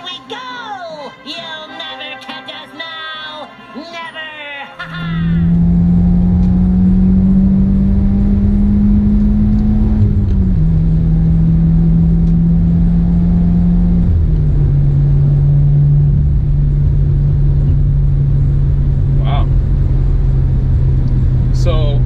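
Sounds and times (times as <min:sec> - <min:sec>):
car engine accelerating hard: 0:04.8 - 0:22.0.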